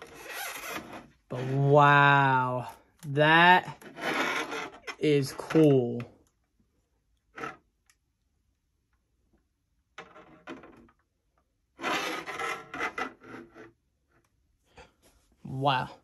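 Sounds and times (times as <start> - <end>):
model car scraping on wooden desk: 0.0 - 1.3, 3.8 - 5.0, 11.8 - 13.8.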